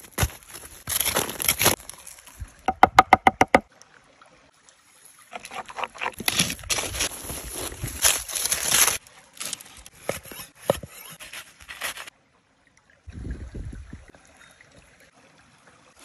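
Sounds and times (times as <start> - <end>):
foil crinkling and crackling: 0.0 - 2.3, 6.2 - 10.2, 11.2 - 12.1
pitched glugs: 2.7 - 3.6
stick scraping through embers: 5.3 - 12.1.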